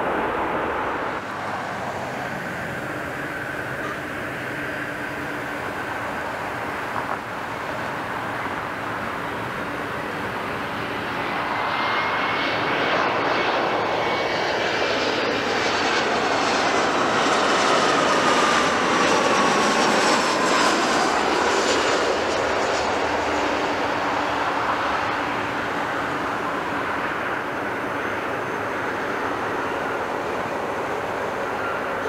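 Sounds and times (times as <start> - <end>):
jet engines passing close: 0.0 - 32.0
jet whine gliding down in pitch: 0.0 - 32.0.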